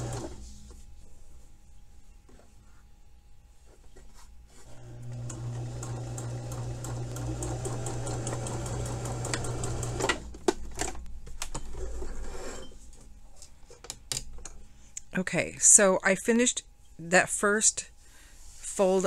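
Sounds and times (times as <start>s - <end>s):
sewing machine stitching: 0.0s - 0.4s, 4.6s - 10.3s.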